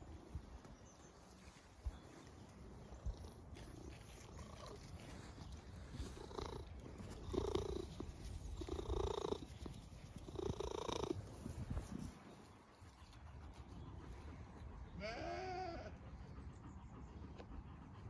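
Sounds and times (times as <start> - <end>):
cat purring: 3.9 - 11.3.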